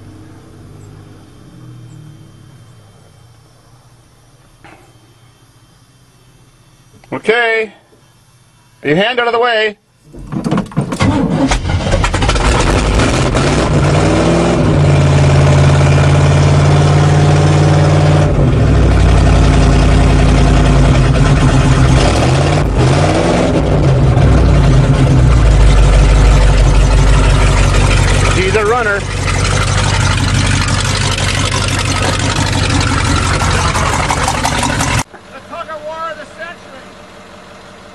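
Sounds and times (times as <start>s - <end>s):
truck engine cranking and revving: 10.1s - 35.1s.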